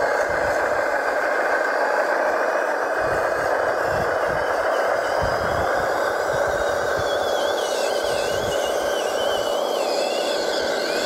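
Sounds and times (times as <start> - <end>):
thin high whine: 0.0 - 11.0
electric motor and gear drive whirring: 2.9 - 11.0.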